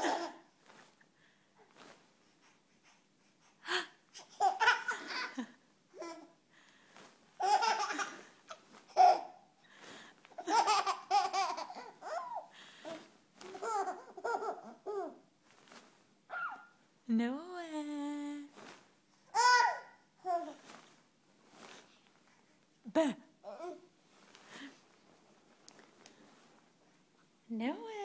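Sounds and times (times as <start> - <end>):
baby laughing: 0.0 - 0.4, 4.2 - 6.3, 7.4 - 9.4, 10.4 - 12.5, 13.4 - 15.2, 19.3 - 20.6.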